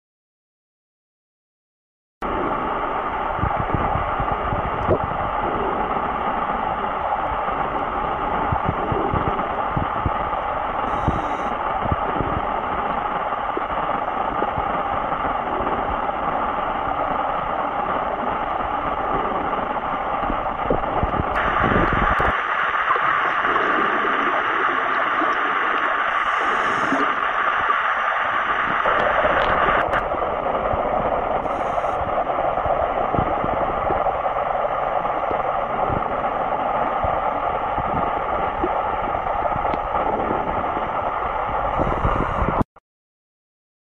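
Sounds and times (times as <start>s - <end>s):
underwater rushing hiss: 4.1s - 30.1s, 30.8s - 37.0s, 41.7s - 42.6s.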